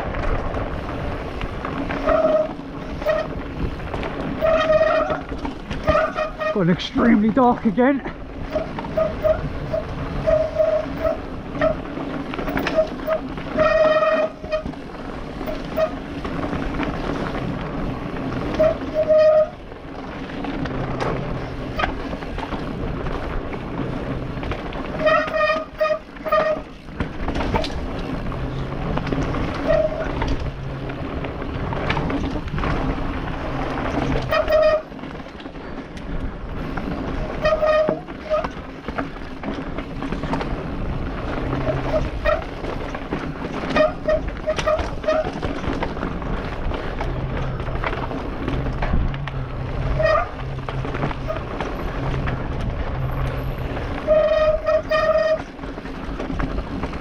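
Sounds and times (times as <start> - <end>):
bike tyre rumble on dirt: 0.0 - 57.0
knocks and rattles over roots: 0.0 - 57.0
wind on camera: 38.2 - 54.9.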